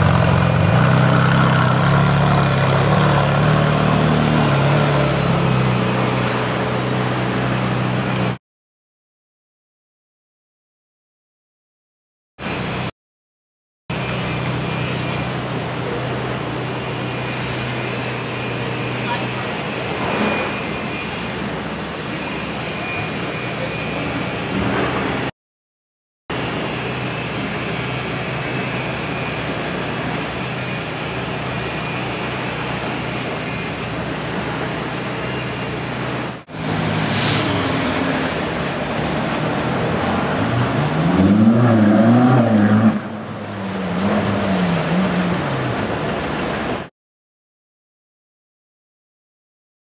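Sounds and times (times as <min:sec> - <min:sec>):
street traffic noise: 0:00.0 - 0:08.4, 0:12.4 - 0:12.9, 0:13.9 - 0:25.3, 0:26.3 - 0:46.9
car engine revving: 0:36.4 - 0:45.0.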